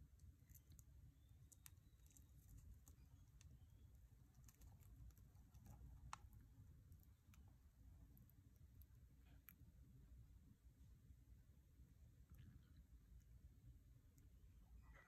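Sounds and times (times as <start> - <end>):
faint clicks and ticks: 0.0 - 9.7.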